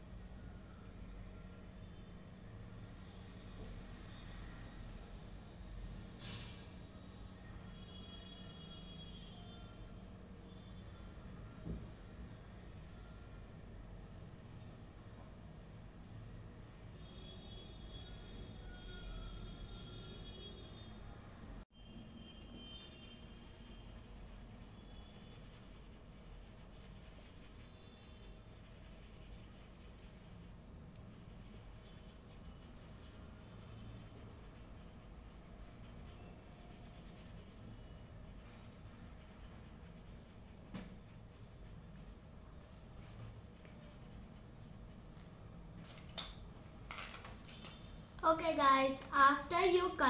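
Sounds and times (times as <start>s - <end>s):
pencil scratching on paper: 21.8s - 41.9s, 43.3s - 45.3s.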